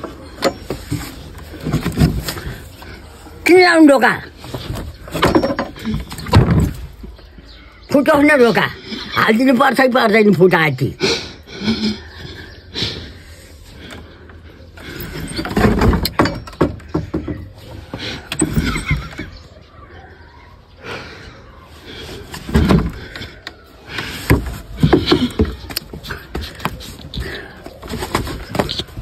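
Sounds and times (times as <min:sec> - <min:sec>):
wooden door knocking and scraping: 0:15.3 - 0:19.0.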